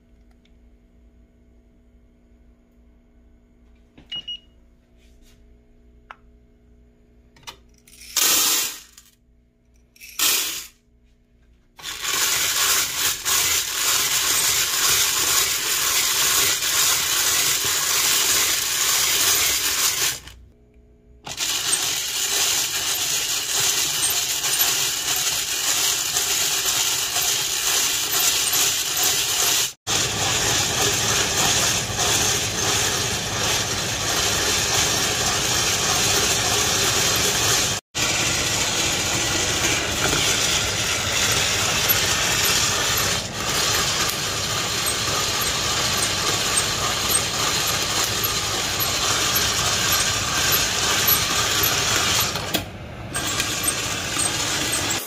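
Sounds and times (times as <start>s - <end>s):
beans rattling in stirred pot: 7.9s - 9.0s, 11.8s - 20.3s, 21.4s - 52.4s, 53.1s - 55.0s
beans poured into metal pot: 8.2s - 8.9s, 10.2s - 10.7s.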